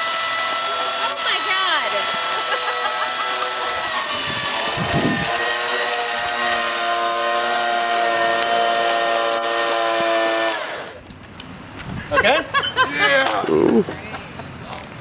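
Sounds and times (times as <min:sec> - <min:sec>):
electric motor whining: 0:00.0 - 0:11.0.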